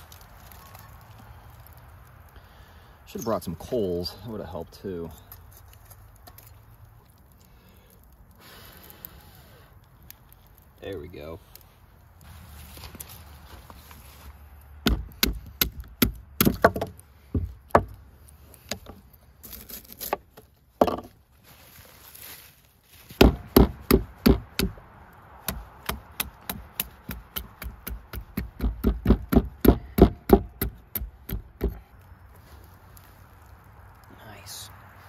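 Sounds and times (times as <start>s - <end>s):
chopping knocks on wood: 23.2s - 24.7s.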